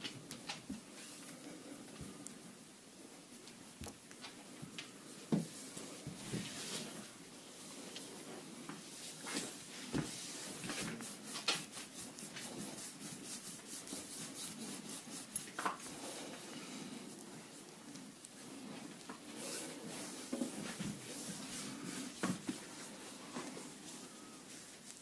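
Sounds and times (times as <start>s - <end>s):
hands rubbing skin: 7.8s - 17.7s, 18.4s - 25.0s.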